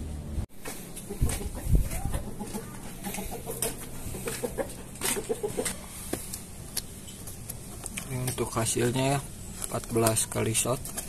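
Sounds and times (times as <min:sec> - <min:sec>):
footsteps in sandals on concrete: 0:00.5 - 0:08.2
bird clucking calls: 0:00.7 - 0:06.3.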